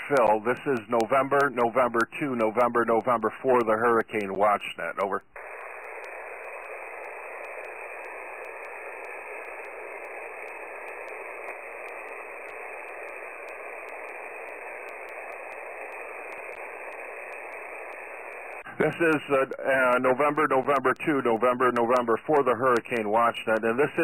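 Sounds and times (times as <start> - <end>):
radio static hiss: 0.0 - 24.0.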